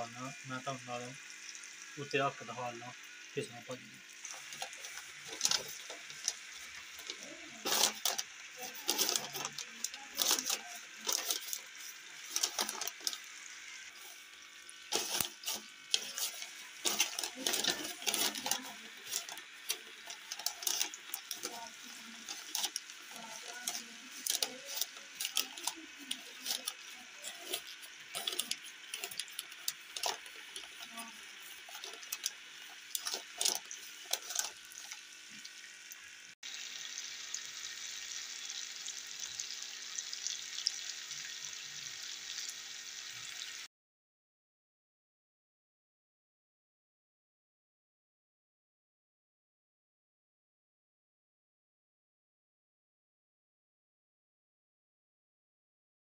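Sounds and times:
paper crinkling and rustling: 0:04.2 - 0:13.3, 0:14.9 - 0:35.4.

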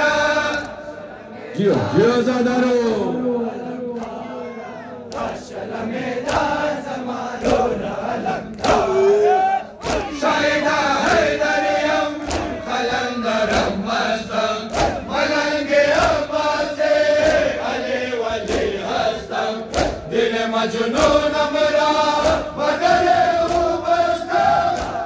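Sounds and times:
men chanting in unison: 0:00.0 - 0:25.0
hands slapping chests: 0:06.2 - 0:06.5, 0:07.4 - 0:07.8, 0:08.5 - 0:09.0, 0:09.8 - 0:10.2, 0:12.2 - 0:12.6, 0:13.4 - 0:13.8, 0:14.7 - 0:15.1, 0:17.2 - 0:17.5, 0:18.4 - 0:18.8, 0:19.6 - 0:20.1, 0:22.2 - 0:25.0.

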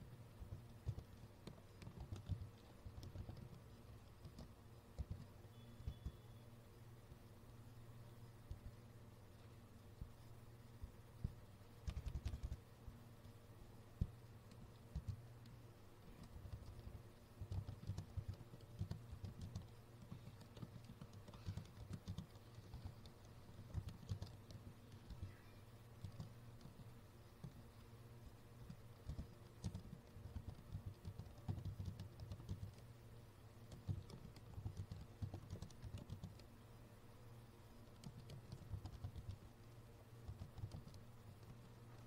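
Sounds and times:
low steady hum: 0:00.0 - 0:42.0
computer keyboard typing: 0:00.4 - 0:06.3, 0:11.2 - 0:12.6, 0:14.0 - 0:27.8, 0:28.6 - 0:32.9, 0:33.6 - 0:36.5, 0:37.8 - 0:39.6, 0:40.2 - 0:42.0.

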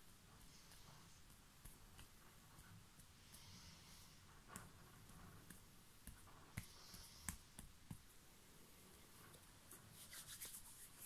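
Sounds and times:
hand rubbing near microphone: 0:09.0 - 0:11.0.

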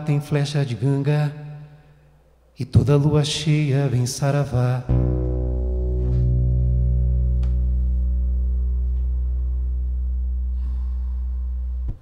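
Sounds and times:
classical guitar chord ringing: 0:04.9 - 0:12.0.

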